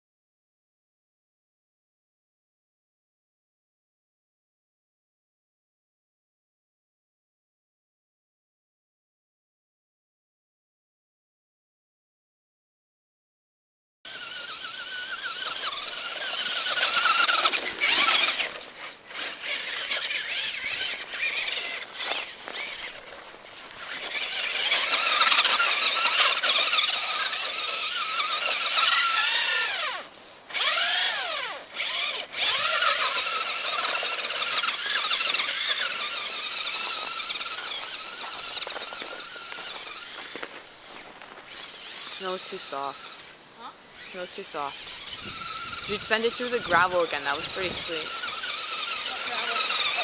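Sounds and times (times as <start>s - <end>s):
toy truck electric motor whining: 14.1s - 50.0s.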